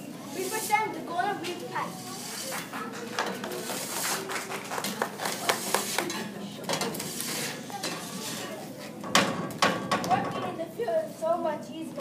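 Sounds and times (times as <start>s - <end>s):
rakes scraping wooden floor: 1.9s - 4.3s, 6.9s - 8.9s.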